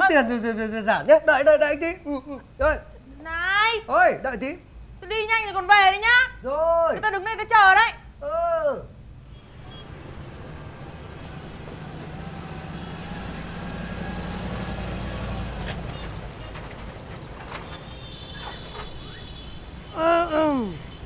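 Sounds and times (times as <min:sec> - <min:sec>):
street traffic: 0:00.0 - 0:21.0
jeep engine running: 0:09.2 - 0:21.0.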